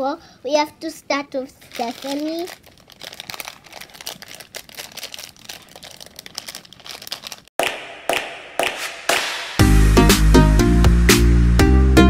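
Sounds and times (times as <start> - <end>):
plastic bag crinkling: 1.6 - 7.5.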